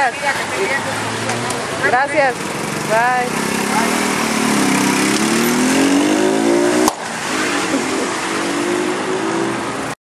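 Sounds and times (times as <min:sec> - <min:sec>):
small motorcycle engine accelerating: 0:02.3 - 0:08.9.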